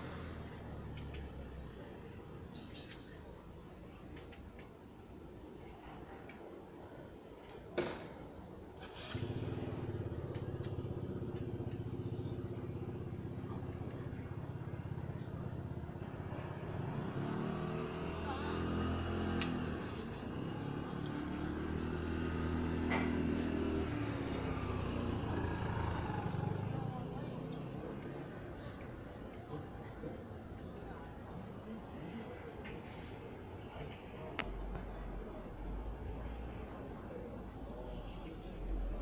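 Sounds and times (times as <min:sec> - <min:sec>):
vehicle engine running: 0:08.8 - 0:31.4
sharp click: 0:19.3 - 0:19.6.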